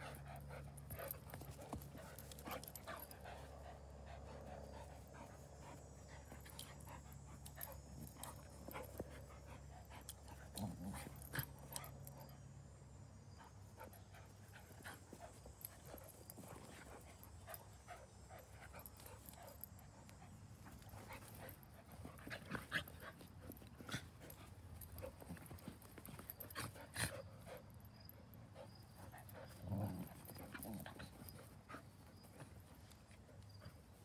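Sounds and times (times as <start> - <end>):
dogs panting: 0.0 - 12.4, 13.2 - 34.0
dog growling low: 10.4 - 11.6, 29.4 - 31.0.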